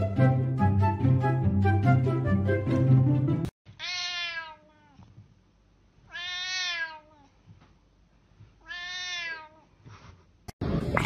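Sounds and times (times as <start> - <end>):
cat meowing: 3.8 - 5.1, 6.1 - 7.3, 8.6 - 9.7.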